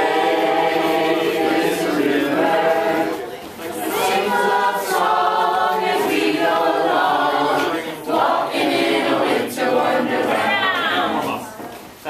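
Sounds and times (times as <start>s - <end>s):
adults and children singing: 0.0s - 11.8s.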